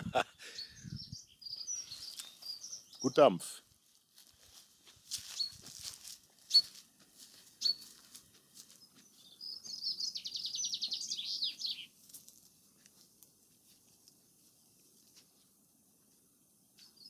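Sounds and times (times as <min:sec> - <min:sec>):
songbird trilling: 0:00.6 - 0:03.1, 0:06.5 - 0:06.7, 0:07.6 - 0:07.9, 0:09.2 - 0:11.9.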